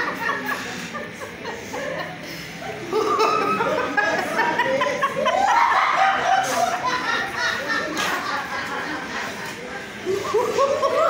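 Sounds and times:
woman laughing: 0:00.0 - 0:09.5.

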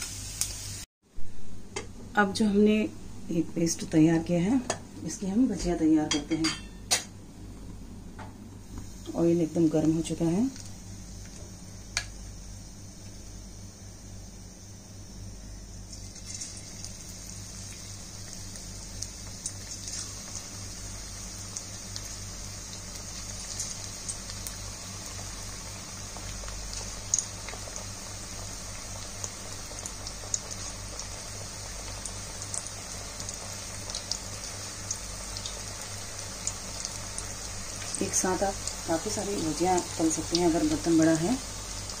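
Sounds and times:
batter deep-frying hiss: 0:00.0 - 0:00.9, 0:02.2 - 0:42.0
oil crackling and popping: 0:15.8 - 0:40.9.

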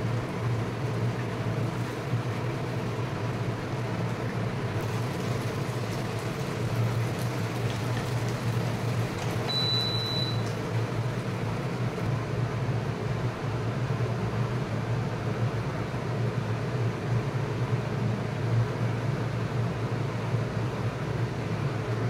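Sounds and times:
low mechanical hum: 0:00.0 - 0:22.0
cooktop control beep: 0:09.5 - 0:10.6.

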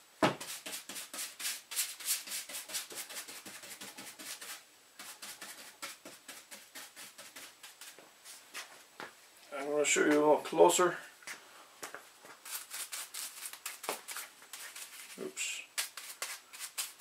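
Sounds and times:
bristle brush scrubbing grease: 0:00.4 - 0:08.4, 0:12.3 - 0:17.0.

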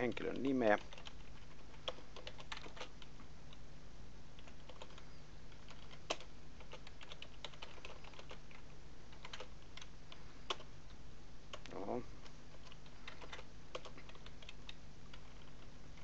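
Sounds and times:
typing on computer keyboard: 0:00.0 - 0:03.1, 0:04.4 - 0:09.9, 0:10.5 - 0:10.7, 0:12.5 - 0:16.0
steady low hum: 0:00.0 - 0:16.0.

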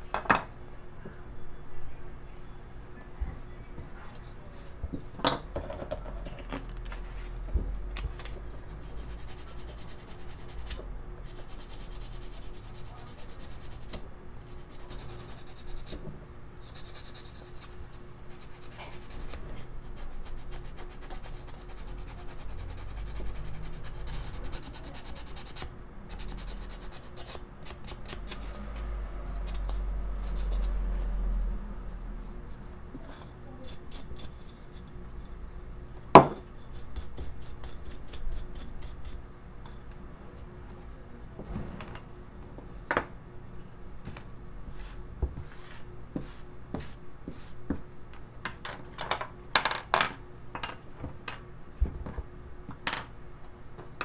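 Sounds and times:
sandpaper rubbing on wood: 0:16.7 - 0:28.0.

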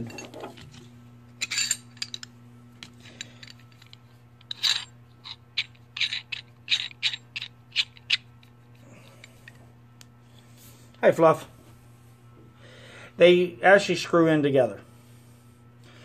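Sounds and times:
steady low hum: 0:00.0 - 0:16.0
wrench and ratchet clicking: 0:04.5 - 0:08.2.

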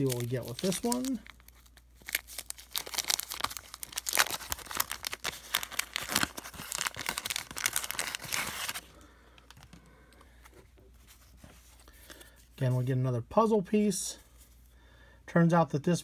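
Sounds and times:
paper wrapper torn and crinkled: 0:00.0 - 0:09.6.

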